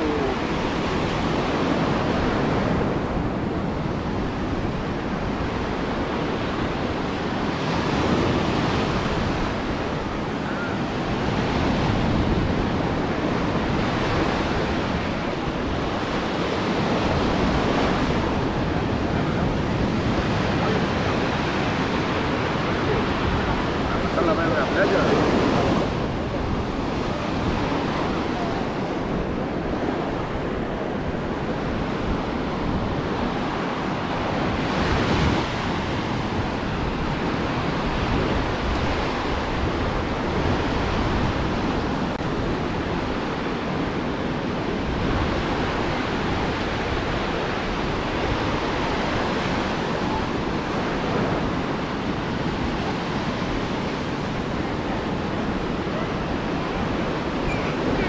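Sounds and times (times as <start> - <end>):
ocean surf washing onto beach: 0.0 - 58.0
wind rumbling on microphone: 0.0 - 58.0.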